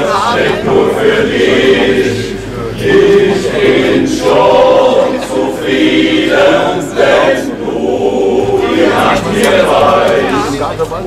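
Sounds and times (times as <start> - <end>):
male voice choir singing: 0.0 - 10.7.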